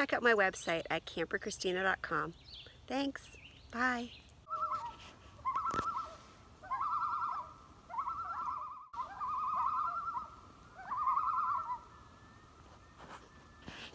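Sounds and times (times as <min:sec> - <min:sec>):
loon tremolo call: 0:04.5 - 0:13.9.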